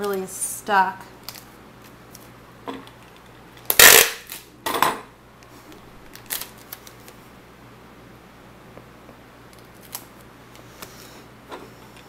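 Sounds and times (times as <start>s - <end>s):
packing tape ripping: 3.6s - 4.5s, 6.1s - 7.2s, 9.6s - 10.2s.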